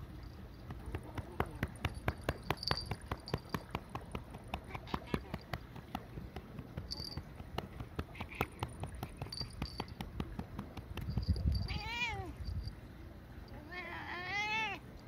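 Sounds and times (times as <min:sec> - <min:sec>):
cat moaning cries: 0:11.7 - 0:12.4, 0:13.6 - 0:14.8.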